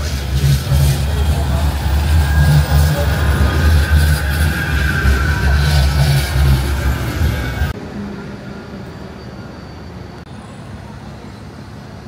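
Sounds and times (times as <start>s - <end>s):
loud low vehicle rumble: 0.0s - 12.0s
street traffic hum: 0.0s - 12.0s.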